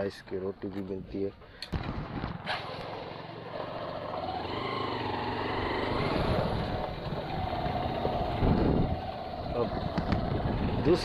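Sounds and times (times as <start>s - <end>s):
motorcycle engine running: 2.4s - 11.0s.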